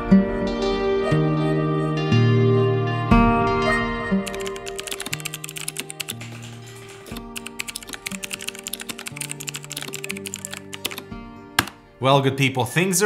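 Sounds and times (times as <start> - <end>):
mechanical keyboard typing: 4.3 - 11.8.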